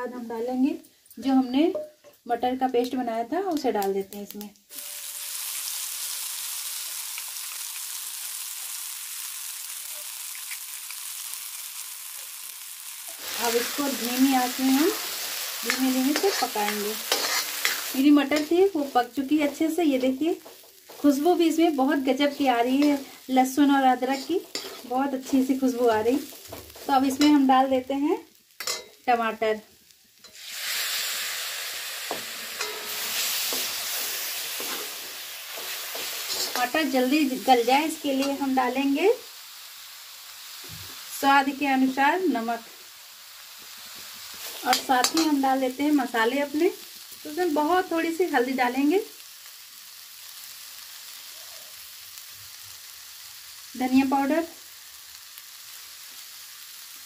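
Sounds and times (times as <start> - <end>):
paste sizzling in hot oil: 4.2 - 57.0
spoon scraping a pan: 14.6 - 18.7, 24.1 - 27.4, 28.6 - 29.0, 32.0 - 37.0, 44.2 - 45.4.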